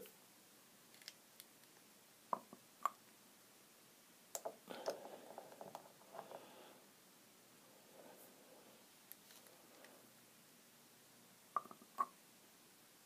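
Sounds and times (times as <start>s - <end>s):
soft rustles: 8.0s - 10.0s.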